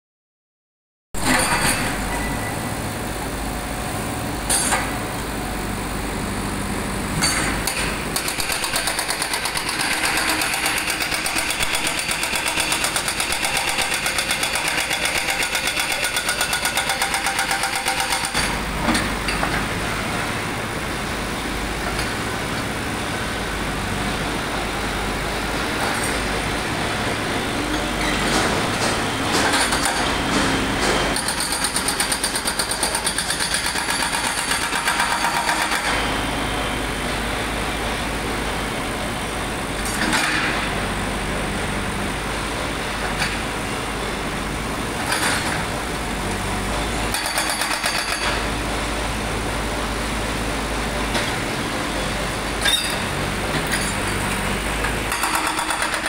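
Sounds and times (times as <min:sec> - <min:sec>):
diesel engine running: 0:01.2 - 0:56.0
hydraulic breaker hammering concrete: 0:07.2 - 0:19.4, 0:28.2 - 0:36.1, 0:47.1 - 0:48.5, 0:54.8 - 0:56.0.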